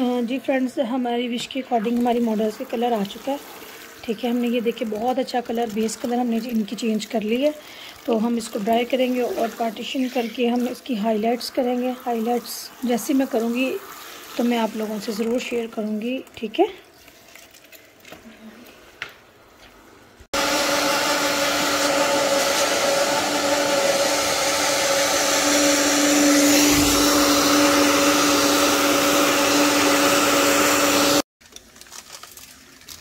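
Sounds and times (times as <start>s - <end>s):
hair dryer blowing: 20.3s - 31.3s.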